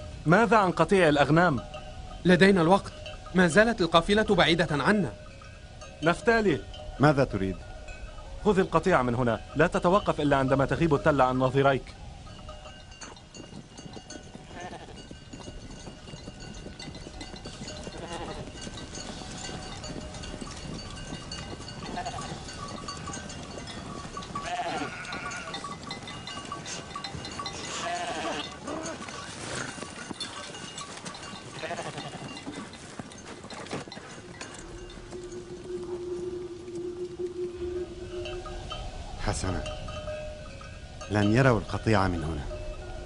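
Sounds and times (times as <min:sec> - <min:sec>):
rustle of moving flock: 0:00.0 - 0:43.0
sheep and goats bleating: 0:14.1 - 0:15.2, 0:16.8 - 0:20.2, 0:21.6 - 0:30.3, 0:31.2 - 0:32.7.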